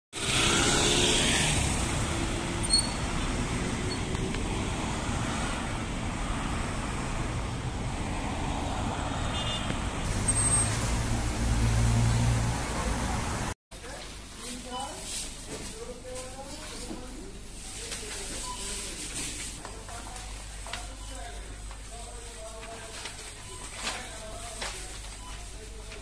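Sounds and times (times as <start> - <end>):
car traffic noise: 0.2 - 13.6.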